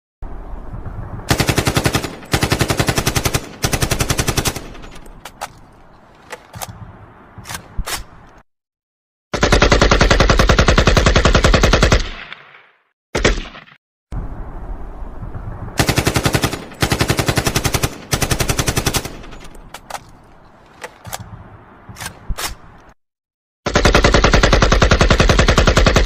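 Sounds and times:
rifle automatic gunfire: 1.3 - 5.0, 9.4 - 12.1, 15.8 - 19.4, 23.7 - 26.0.

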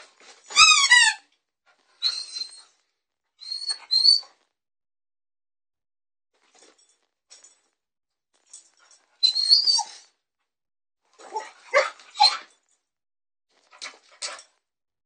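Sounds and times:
small dog whining and yipping: 0.5 - 1.2, 2.0 - 2.7, 3.4 - 4.3, 9.2 - 10.1, 11.3 - 12.5.

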